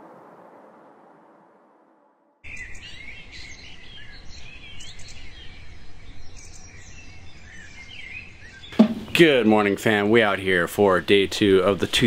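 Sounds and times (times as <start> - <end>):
birds chirping: 2.4 - 12.0.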